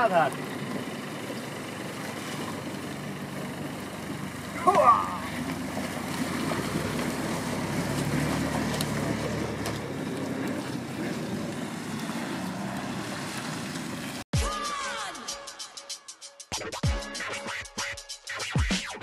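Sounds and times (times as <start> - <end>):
car engine running: 0.0 - 14.2.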